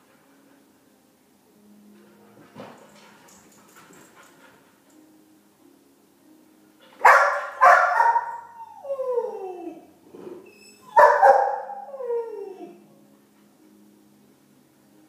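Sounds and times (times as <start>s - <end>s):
dog barking: 7.0s - 8.5s, 11.0s - 11.8s
dog howling: 7.6s - 9.9s, 10.8s - 12.9s.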